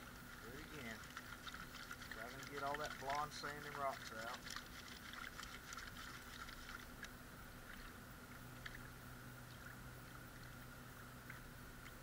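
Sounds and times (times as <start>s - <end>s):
water swishing in a pan: 0.0s - 9.0s
water drips and splashes: 0.0s - 12.0s.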